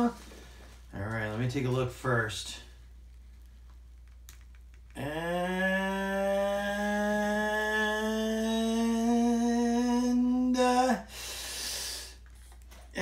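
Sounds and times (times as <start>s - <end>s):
man humming dramatic note: 5.0s - 10.4s.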